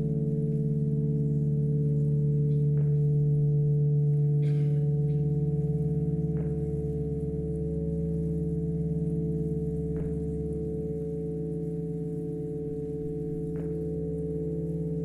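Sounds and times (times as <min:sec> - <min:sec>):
ambient drone music: 0:00.0 - 0:15.0.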